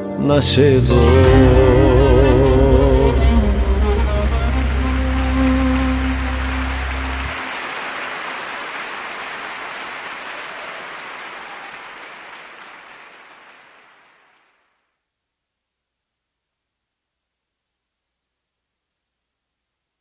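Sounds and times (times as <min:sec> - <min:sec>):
band low note: 0:00.3 - 0:07.4
audience applause: 0:01.2 - 0:14.6.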